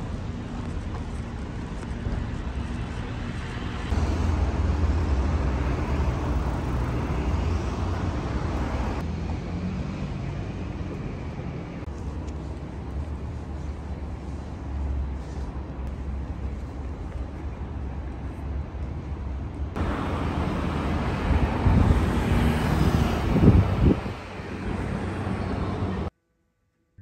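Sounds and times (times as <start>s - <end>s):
road traffic rumble: 0.0s - 26.1s.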